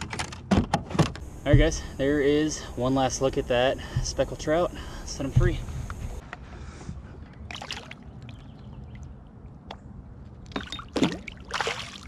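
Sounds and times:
water sloshing: 7.4 - 12.0
fish splashing into water: 7.5 - 8.4, 10.9 - 12.0.

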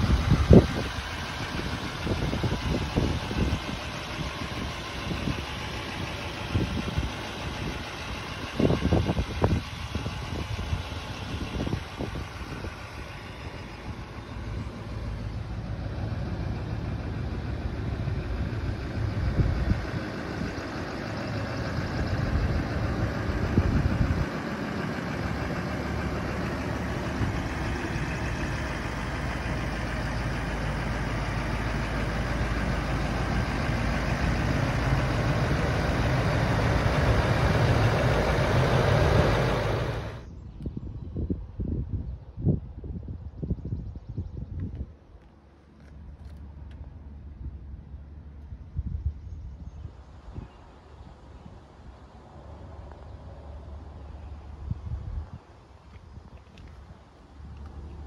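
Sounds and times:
diesel truck engine idling: 0.0 - 40.6.

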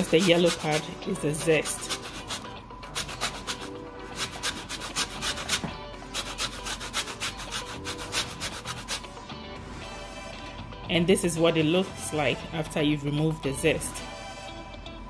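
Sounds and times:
lemon rind rasping on grater: 0.0 - 9.0.

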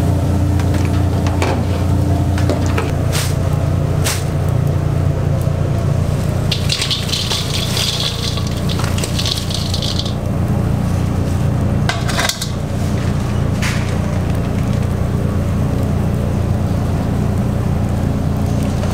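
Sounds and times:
chips pouring into metal bowl: 6.2 - 10.3.

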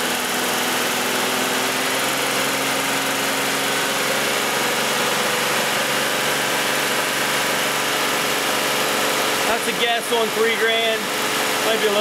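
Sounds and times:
car engine running at raised speed: 0.0 - 12.0.

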